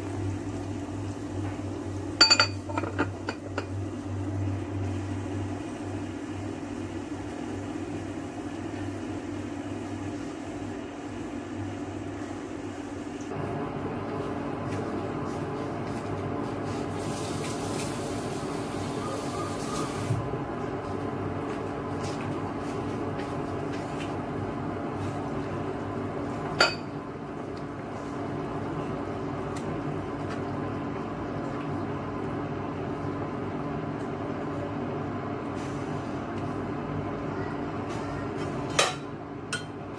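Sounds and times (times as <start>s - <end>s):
induction cooktop humming: 0.0s - 39.9s
glass clink: 2.2s - 3.7s, 26.6s - 26.9s.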